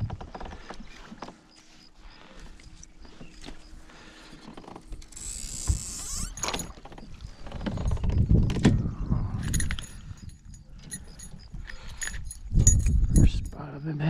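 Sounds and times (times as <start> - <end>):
heavy rumbling handling noise: 2.5 - 13.7.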